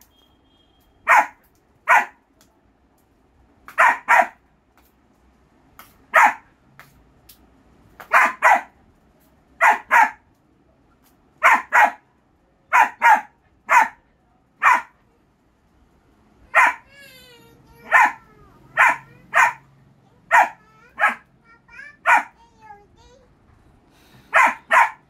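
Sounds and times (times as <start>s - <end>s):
puppy barking: 1.0s - 2.2s, 3.7s - 4.4s, 6.1s - 6.5s, 8.0s - 8.8s, 9.6s - 10.2s, 11.4s - 12.1s, 12.7s - 14.0s, 14.6s - 15.0s, 16.5s - 16.9s, 17.8s - 21.3s, 22.0s - 22.4s, 24.3s - 25.0s.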